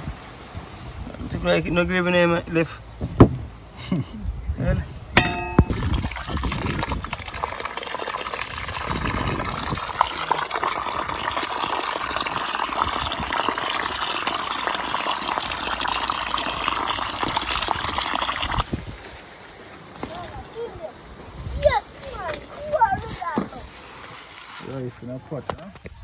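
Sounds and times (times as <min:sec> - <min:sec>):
running water rushing: 0:05.2 - 0:25.0.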